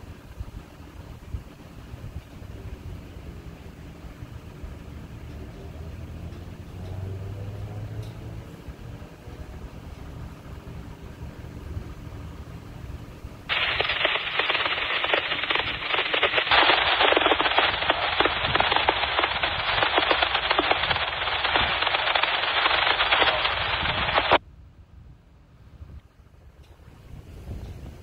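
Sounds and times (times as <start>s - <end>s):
freight train wheels rumbling: 8.8s - 24.4s
radio static hiss: 13.5s - 24.4s.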